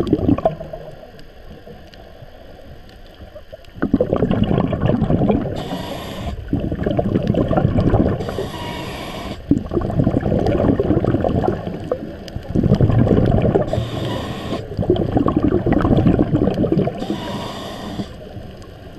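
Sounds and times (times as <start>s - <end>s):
gurgle of exhaled bubbles: 0.0s - 1.8s, 3.1s - 8.4s, 9.4s - 17.4s
regulator hissing inhales: 5.6s - 6.5s, 8.2s - 9.5s, 13.7s - 14.7s, 17.0s - 18.4s.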